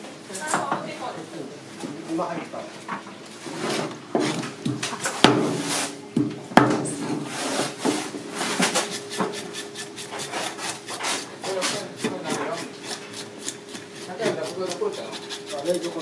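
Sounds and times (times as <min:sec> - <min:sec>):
knife scraping fish scales: 0:07.3 - 0:16.0.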